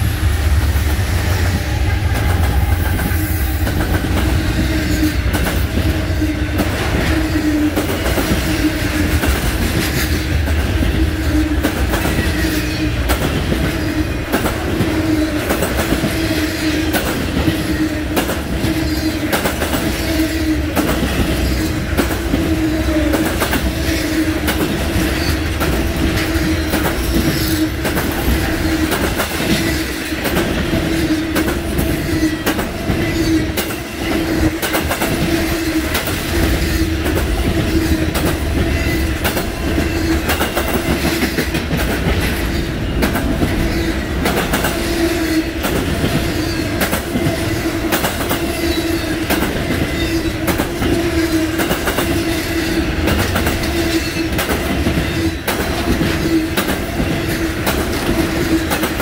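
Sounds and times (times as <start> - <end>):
freight train rolling past: 0.0 - 59.0
wheels clacking over rail joints: 45.6 - 59.0.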